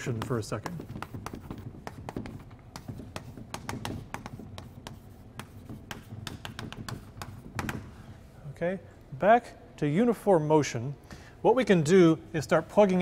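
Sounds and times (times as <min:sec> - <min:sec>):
chalk tapping on chalkboard: 0:00.0 - 0:08.2.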